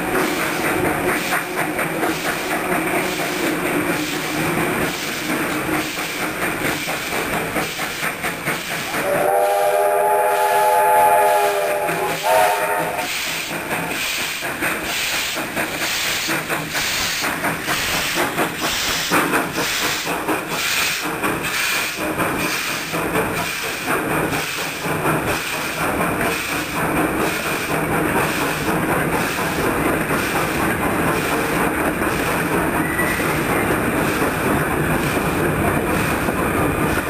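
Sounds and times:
steam locomotive exhaust chuffs: 0.0s - 37.0s
train carriages rolling past: 0.0s - 37.0s
steam whistle blasts: 9.0s - 13.2s.

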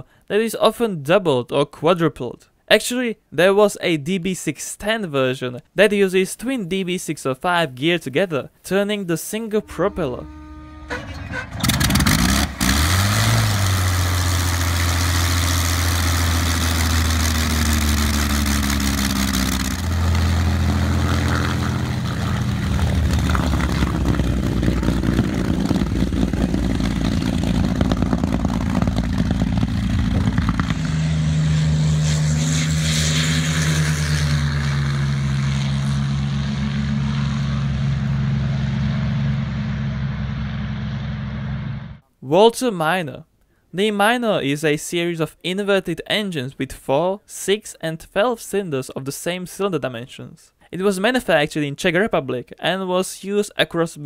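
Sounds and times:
aircraft engine running: 9.6s - 42.0s.

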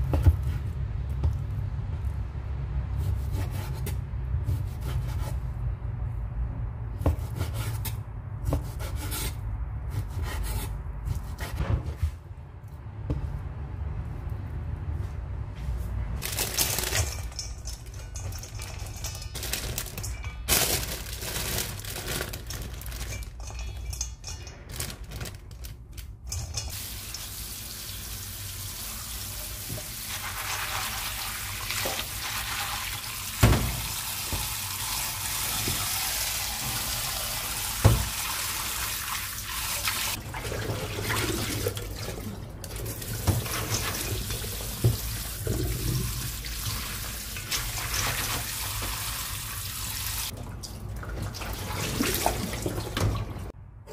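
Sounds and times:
tap water running into a bowl: 26.7s - 53.2s.

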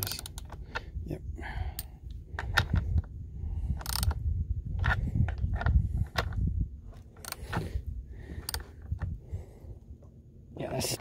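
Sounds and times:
metal socket clicking on nuts: 0.0s - 0.6s, 3.8s - 4.2s
low rumble: 0.0s - 10.6s.

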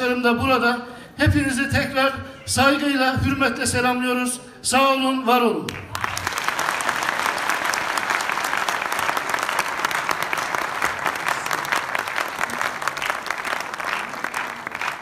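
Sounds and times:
audience applauding: 5.7s - 15.0s.

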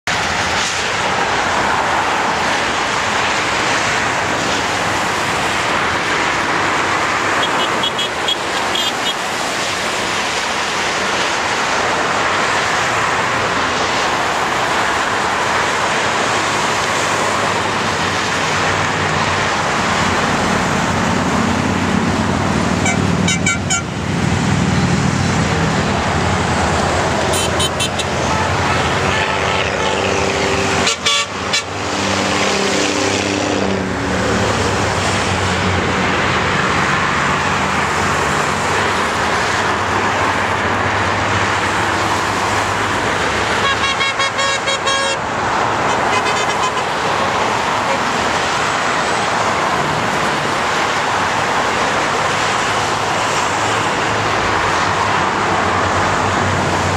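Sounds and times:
freeway traffic on wet road: 0.0s - 56.9s
motorcycles passing: 0.1s - 56.9s
vehicle horns: 7.3s - 9.3s, 22.8s - 24.0s, 27.2s - 31.8s, 43.5s - 48.0s.

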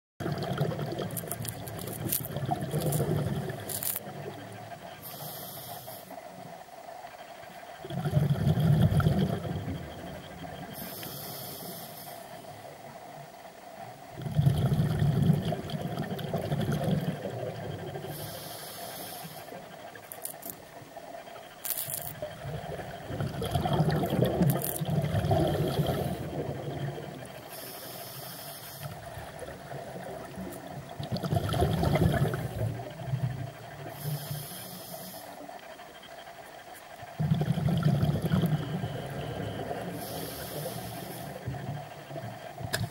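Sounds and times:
bubbling exhale underwater: 0.2s - 4.4s, 7.8s - 10.8s, 14.1s - 18.2s, 21.7s - 27.6s, 28.9s - 34.1s, 37.1s - 41.9s
hissing regulator inhale: 5.0s - 6.4s, 10.7s - 12.6s, 18.0s - 20.4s, 27.4s - 29.5s, 33.8s - 35.5s, 38.3s - 41.7s.

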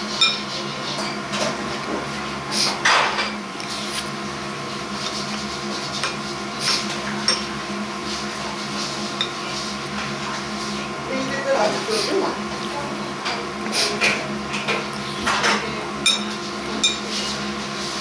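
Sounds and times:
steady machine hum: 0.0s - 18.0s
dishes clinking: 7.2s - 7.5s, 14.0s - 17.2s.

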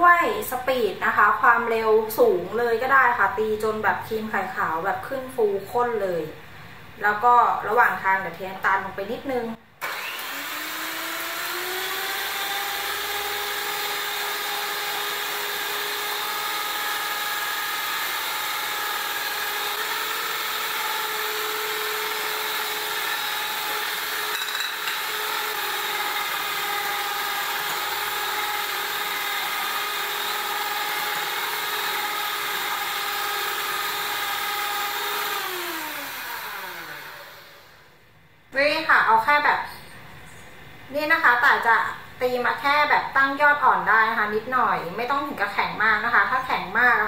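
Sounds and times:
electric hand mixer whirring: 9.8s - 37.9s.

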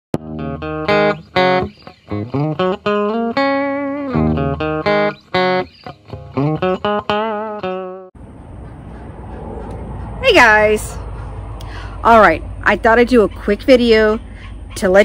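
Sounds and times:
plucked string melody: 0.2s - 8.1s.

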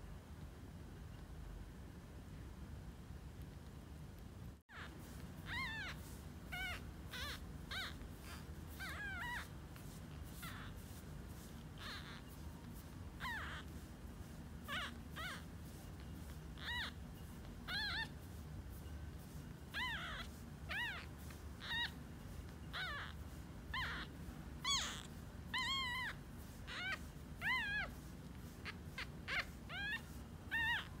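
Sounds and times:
kitten mewing: 23.8s - 28.0s.

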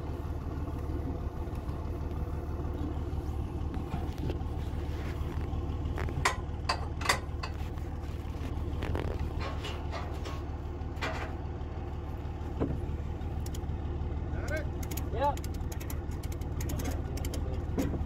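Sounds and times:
vehicle engine idling: 0.0s - 18.0s.

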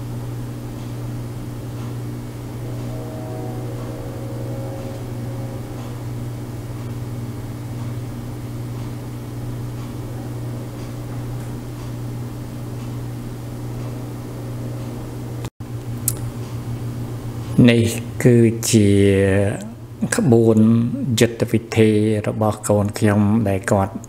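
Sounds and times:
steady low hum: 0.0s - 21.5s
steady higher tones: 1.3s - 12.7s.

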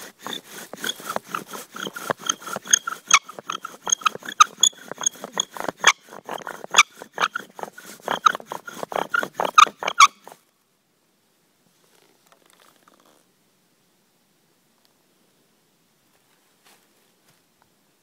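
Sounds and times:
bow drill spindle squeaking: 0.0s - 10.4s.

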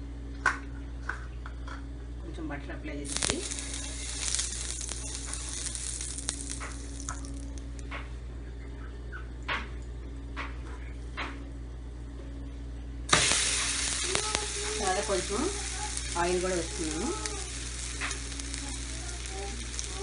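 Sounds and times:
loud sizzle of dough on pan: 3.0s - 7.8s, 13.1s - 20.0s
butter sizzling on a griddle: 3.1s - 7.6s, 13.1s - 20.0s.

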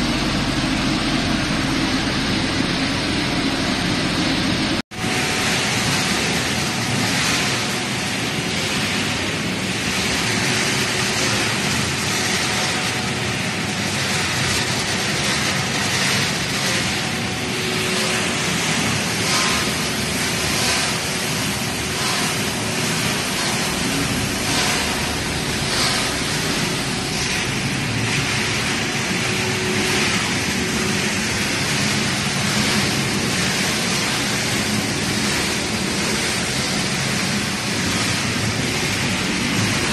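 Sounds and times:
faint constant hum: 0.0s - 39.9s
rotating drum and conveyor machinery: 0.0s - 39.9s.

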